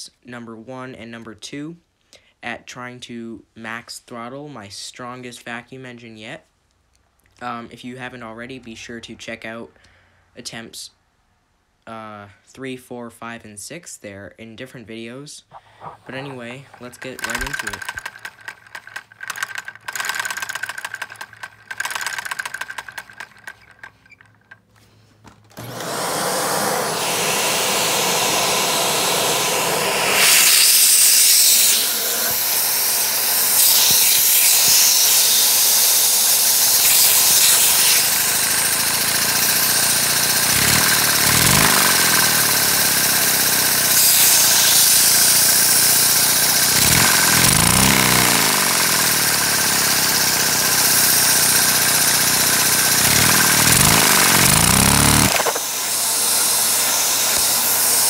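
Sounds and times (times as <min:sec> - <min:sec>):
light rattling: 0:15.5 - 0:24.8
engine drone: 0:15.8 - 0:23.8, 0:25.6 - 0:58.0
rushing of air: 0:26.0 - 0:34.5.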